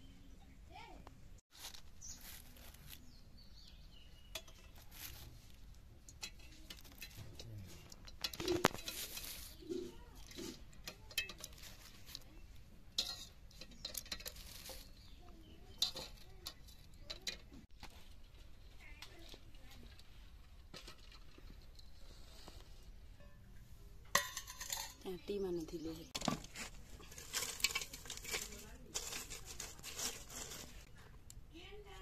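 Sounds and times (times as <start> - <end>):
eggshell clinking on metal: 4.2 - 5.2, 6.0 - 17.6, 23.2 - 25.0, 26.9 - 30.7.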